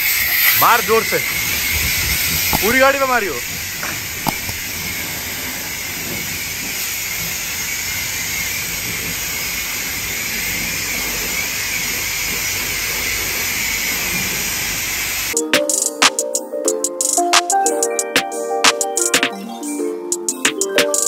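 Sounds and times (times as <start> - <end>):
pressure washer jet hissing: 0.0 - 15.4.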